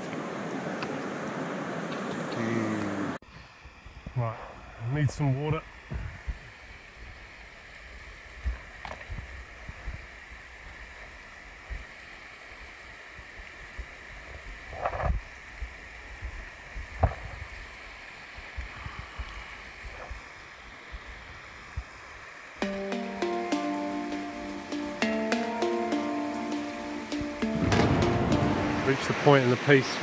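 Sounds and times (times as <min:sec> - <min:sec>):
river rushing over rocks: 0:23.0 - 0:30.0.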